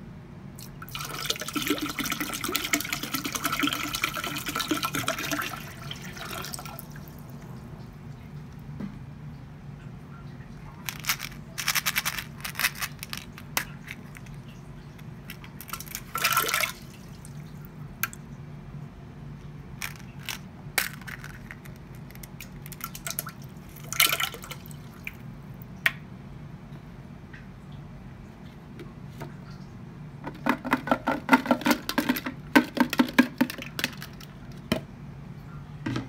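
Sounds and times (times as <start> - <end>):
steady low hum: 0.0 - 30.4
plastic shells rattling: 10.8 - 14.4, 15.0 - 16.7, 19.8 - 23.9, 30.4 - 34.4.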